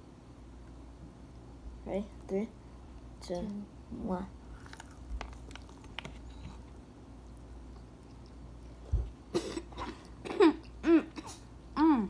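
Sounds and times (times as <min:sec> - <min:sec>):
quiet chewing: 0:04.5 - 0:10.8.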